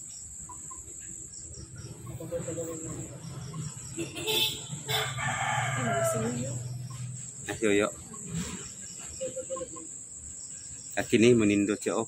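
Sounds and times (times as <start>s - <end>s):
crickets trilling: 0.0s - 12.0s
rooster crowing: 2.0s - 7.1s.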